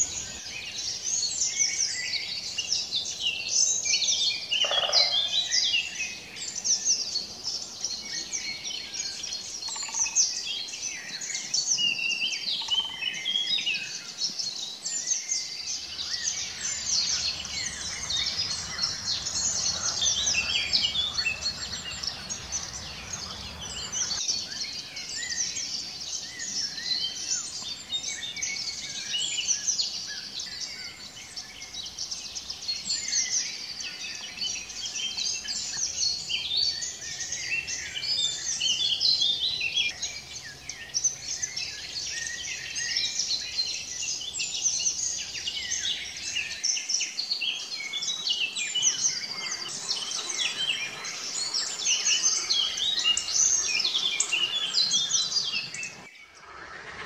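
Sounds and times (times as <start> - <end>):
chorus of songbirds singing: 0.0 - 57.0
low rushing noise: 15.8 - 24.2.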